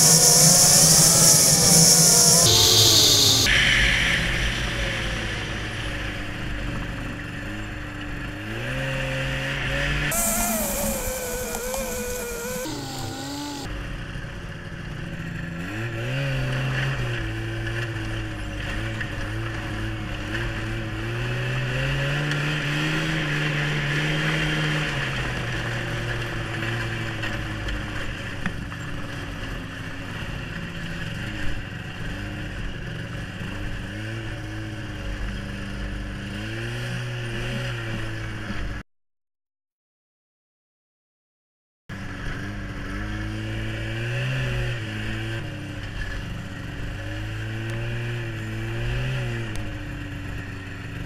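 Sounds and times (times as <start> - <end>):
snowmobile engine running: 0.0 - 3.5, 8.8 - 13.7.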